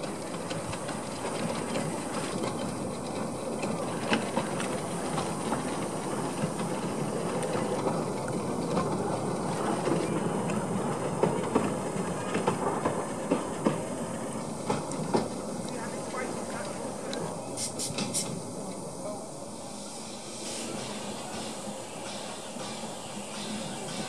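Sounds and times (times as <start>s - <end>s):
wheels clicking over rail joints: 0.0s - 18.9s
steam locomotive rumbling: 0.0s - 24.0s.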